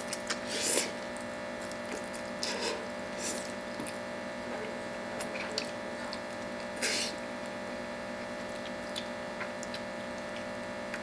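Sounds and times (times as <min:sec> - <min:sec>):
steady electrical hum: 0:00.0 - 0:11.0
person slurping noodles: 0:00.4 - 0:01.0, 0:06.8 - 0:07.2.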